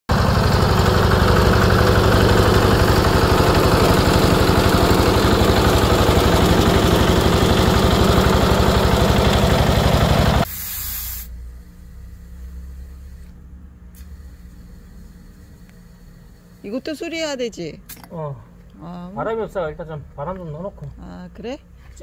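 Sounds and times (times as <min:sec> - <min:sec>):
tractor engine running: 0:00.1 - 0:10.5
compressed air hissing: 0:10.4 - 0:17.0.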